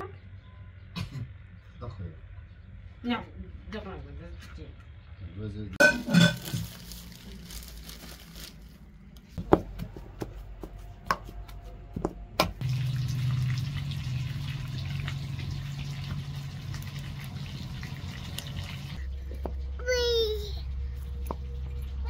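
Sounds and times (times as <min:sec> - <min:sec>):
wood fire hissing and rumbling: 0:12.6 - 0:22.0.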